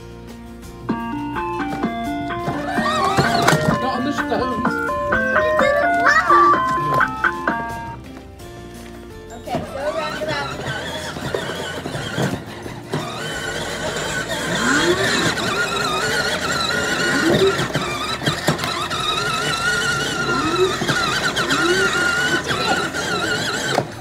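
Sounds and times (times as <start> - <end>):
electric toy scooter whine: 0.9 - 8.0, 9.3 - 24.0
rising and falling tones: 0.9 - 8.0.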